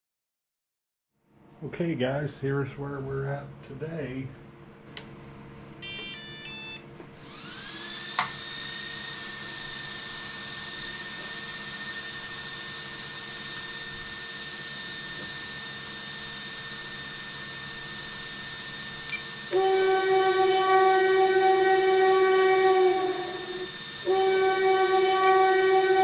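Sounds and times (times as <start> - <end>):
click: 4.9 - 5.1, 19.0 - 19.2
high electric whine: 5.8 - 26.0.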